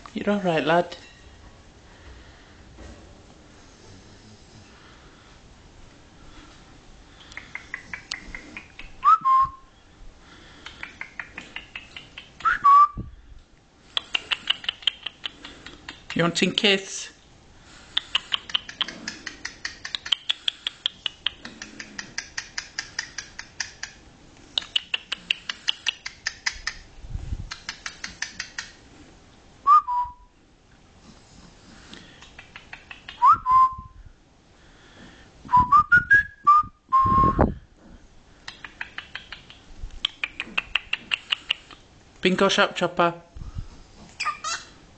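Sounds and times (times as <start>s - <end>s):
rapid soft clicks: 7.2s - 9.0s, 10.5s - 12.5s.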